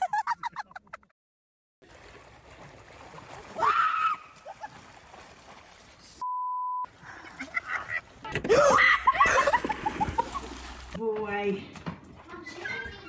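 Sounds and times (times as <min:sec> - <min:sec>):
censor bleep: 0:06.2 - 0:06.9.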